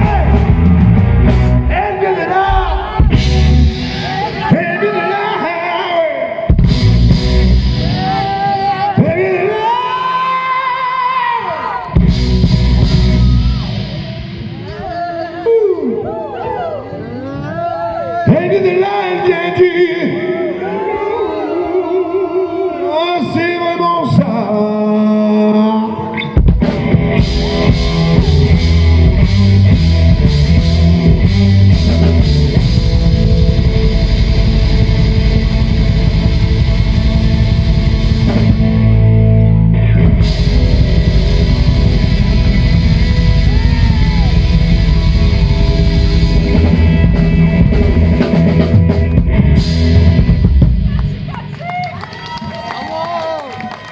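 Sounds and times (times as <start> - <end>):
live rock band playing: 0.0 - 5.1, 6.5 - 9.2, 11.9 - 15.6, 26.0 - 51.6.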